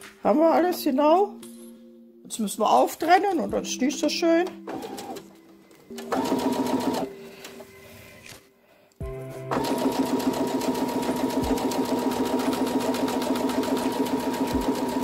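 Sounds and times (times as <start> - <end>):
sewing machine running: 4.7 - 5.2, 6.0 - 7.1, 9.5 - 15.0.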